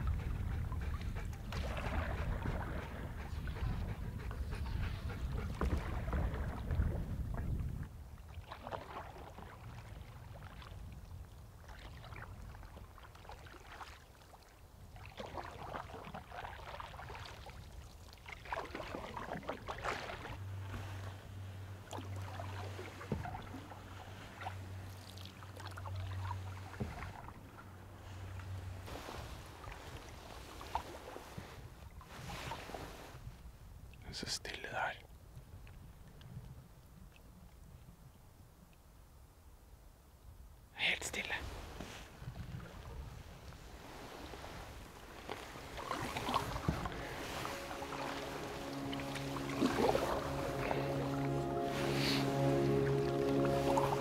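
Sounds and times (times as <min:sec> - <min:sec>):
canoe paddle swishing in water: 0:00.0 - 0:10.9, 0:11.6 - 0:33.4, 0:41.4 - 0:54.0
wind rumble on microphone: 0:00.0 - 0:13.5, 0:14.6 - 0:34.1, 0:35.1 - 0:40.7, 0:41.4 - 0:51.0
low steady hum: 0:20.2 - 0:30.9, 0:41.5 - 0:54.0.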